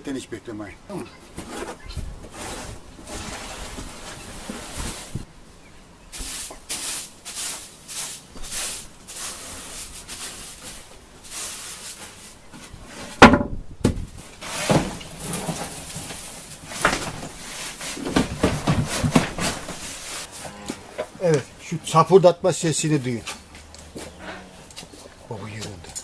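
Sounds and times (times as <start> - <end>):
shovel scraping concrete floor: 1.4 - 5.2, 6.2 - 13.2, 14.4 - 20.6
hand brush sweeping wooden floor: 2.3 - 5.3, 6.1 - 13.2, 14.4 - 20.5.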